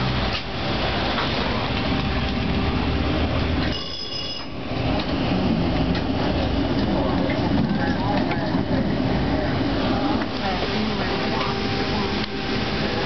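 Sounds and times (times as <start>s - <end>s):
streetcar motors and wheels rumbling: 0.0s - 13.0s
high-pitched ringing tone: 3.7s - 4.6s.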